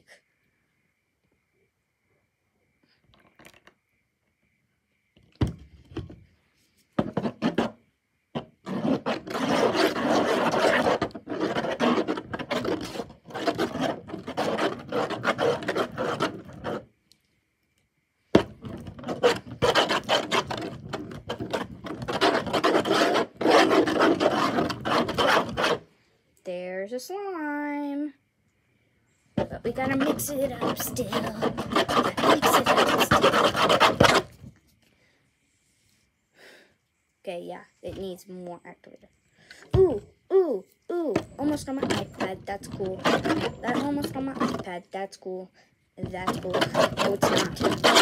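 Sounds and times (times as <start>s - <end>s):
tool scraping slime on tabletop: 7.0s - 7.8s, 8.4s - 16.9s, 18.4s - 25.8s, 29.4s - 34.5s, 41.1s - 44.9s, 46.0s - 48.0s.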